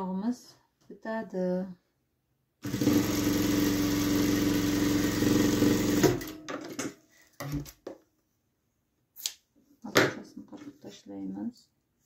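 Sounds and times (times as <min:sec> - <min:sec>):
sewing machine running: 0:02.6 - 0:06.4.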